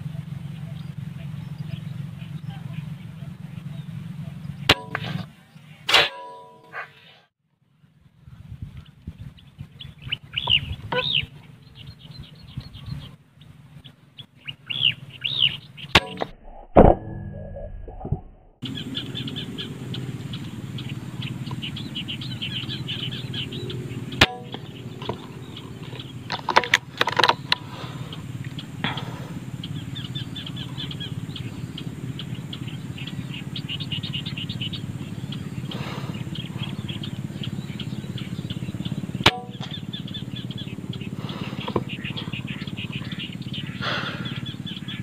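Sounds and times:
steady low hum: 0:00.0 - 0:45.0
high chirping: 0:09.8 - 0:13.1, 0:18.6 - 0:45.0.

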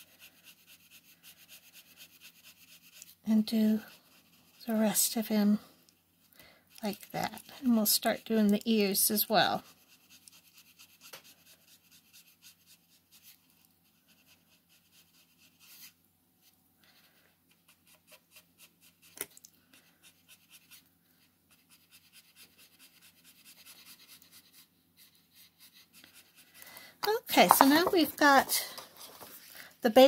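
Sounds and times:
marker scratching on paper: 0:00.0 - 0:05.4, 0:06.8 - 0:15.9, 0:19.8 - 0:20.8, 0:21.5 - 0:29.3.

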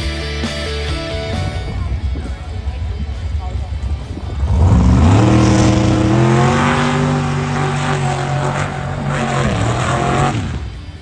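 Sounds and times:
engine at full throttle: 0:03.6 - 0:11.0
rushing noise: 0:04.2 - 0:11.0.

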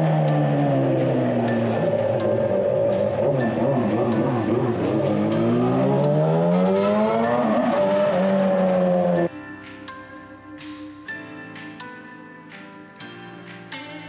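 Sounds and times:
motorcycle engine revving: 0:00.0 - 0:09.3
music with steady beat: 0:00.0 - 0:14.0.

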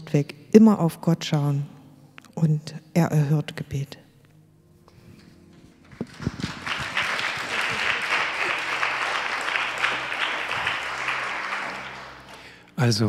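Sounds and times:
audience applauding: 0:05.9 - 0:12.8.

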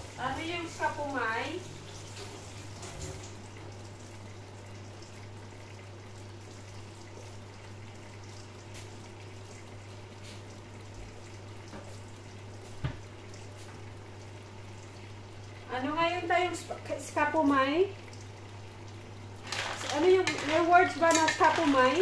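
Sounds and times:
food bubbling in covered pan: 0:02.6 - 0:15.6, 0:18.2 - 0:22.0.

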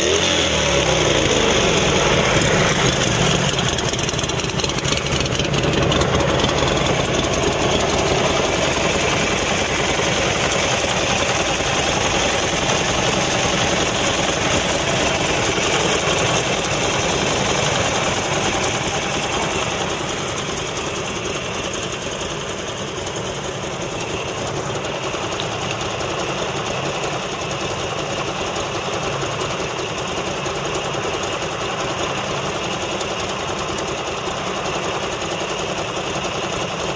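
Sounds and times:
motorcycle engine idling: 0:00.0 - 0:36.9.

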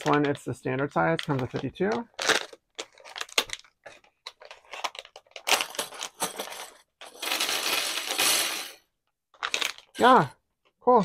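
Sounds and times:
clips poured onto table: 0:05.6 - 0:08.8.

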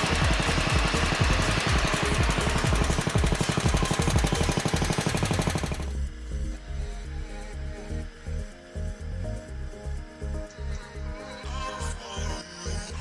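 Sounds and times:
tractor engine running: 0:00.0 - 0:06.1
background music: 0:00.0 - 0:13.0.

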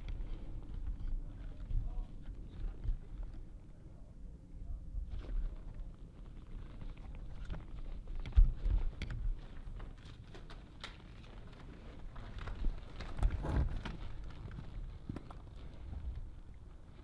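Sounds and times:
rustling: 0:05.1 - 0:17.0.

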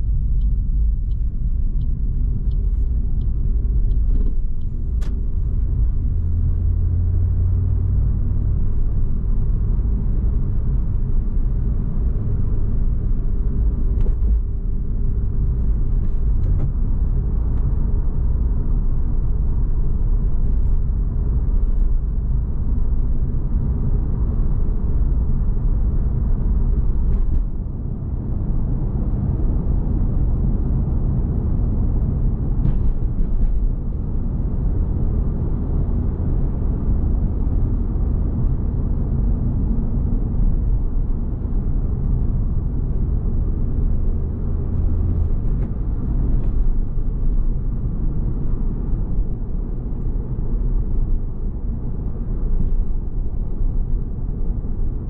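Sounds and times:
car engine rumble from cabin: 0:00.0 - 0:55.0
tyre and road noise: 0:00.0 - 0:55.0.

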